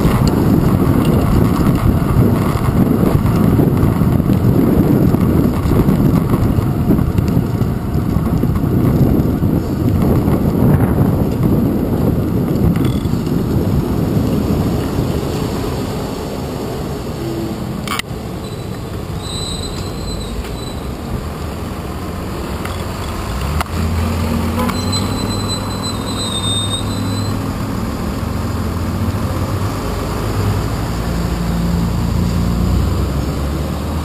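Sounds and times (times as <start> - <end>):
wind rushing over camera: 0.0 - 19.2
bicycle rolling rumble: 0.0 - 34.0.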